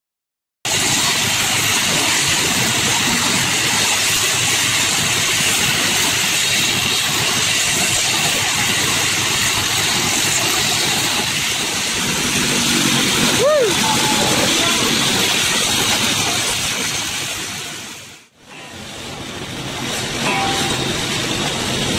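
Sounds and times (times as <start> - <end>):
portable generator running: 18.4 - 21.9.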